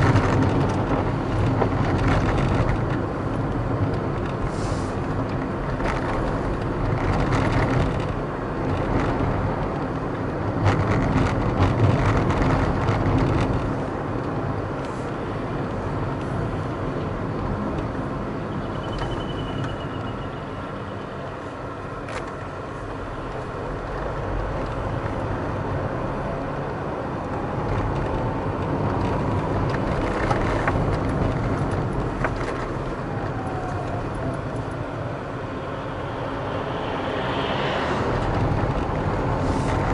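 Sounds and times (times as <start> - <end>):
car engine and tyre noise: 0.0 - 39.9.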